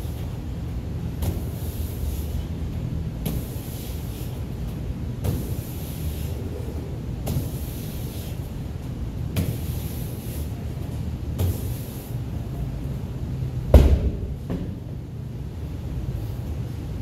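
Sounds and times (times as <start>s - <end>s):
steady low hum: 0.0s - 17.0s
medicine ball thumping wall: 11.3s - 11.7s, 13.7s - 14.9s
ball thudding on rubber floor: 13.7s - 14.8s.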